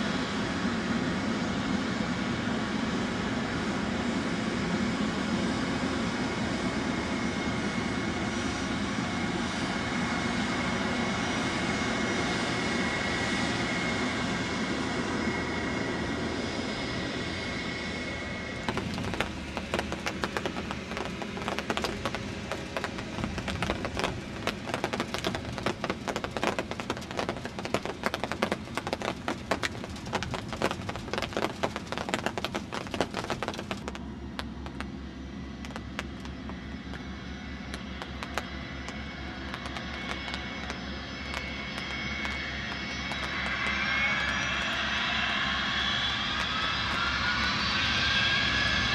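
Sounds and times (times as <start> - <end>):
jet engines whining: 0.1 - 48.9
rough crackling jet noise: 18.4 - 48.9.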